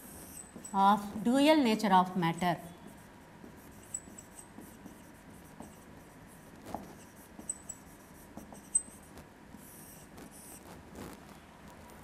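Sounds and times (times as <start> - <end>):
marker squeaks: 0.0 - 0.8, 3.6 - 5.9, 6.9 - 10.7
marker scratching on whiteboard: 0.0 - 1.1, 2.5 - 11.2.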